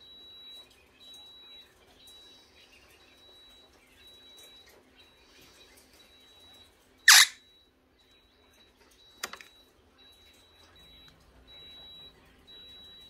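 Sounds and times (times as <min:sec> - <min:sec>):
parrot squawk: 0:07.1 - 0:07.4.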